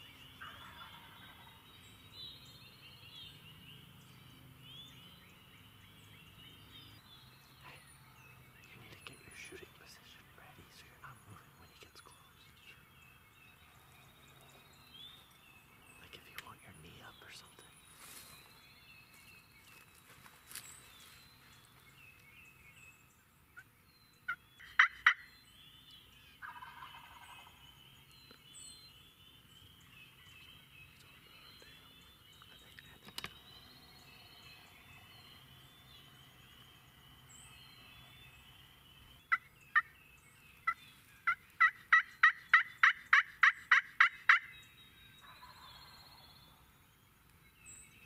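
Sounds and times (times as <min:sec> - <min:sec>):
songbirds chattering: 0:00.0 - 0:48.0
turkey gobbling: 0:00.4 - 0:01.6, 0:24.3 - 0:25.2, 0:26.4 - 0:27.5, 0:40.7 - 0:44.5
sharp turkey yelps: 0:24.3 - 0:25.2, 0:40.7 - 0:44.5.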